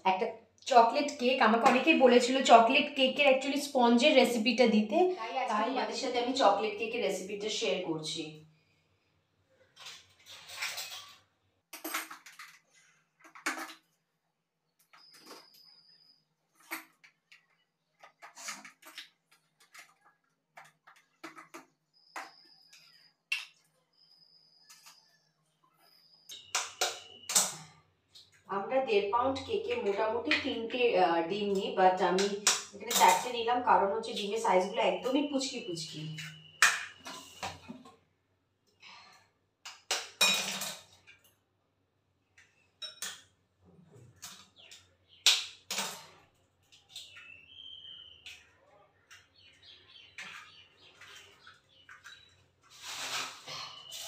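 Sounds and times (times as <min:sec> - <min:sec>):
kitchen items clicking and knocking: 0:09.8 - 0:14.0, 0:16.5 - 0:23.7, 0:26.3 - 0:28.5, 0:29.2 - 0:35.2, 0:35.8 - 0:38.0, 0:39.6 - 0:41.4, 0:42.4 - 0:47.2
eggs cracking on glass bowl: 0:26.3 - 0:28.4, 0:32.1 - 0:33.2, 0:42.8 - 0:43.4, 0:44.2 - 0:46.1.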